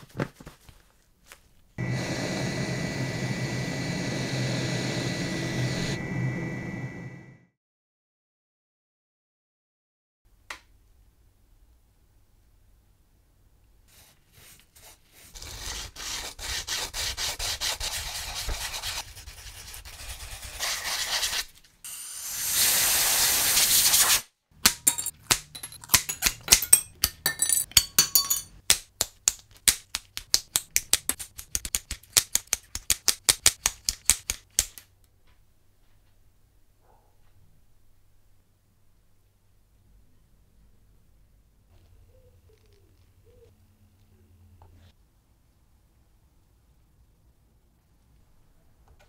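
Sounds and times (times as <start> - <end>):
metal shears snipping sheet: 23.8 - 34.9.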